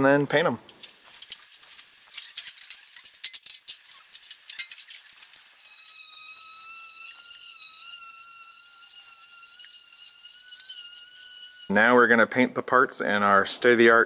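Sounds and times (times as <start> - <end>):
scrubbing strokes: 0.7 - 11.7.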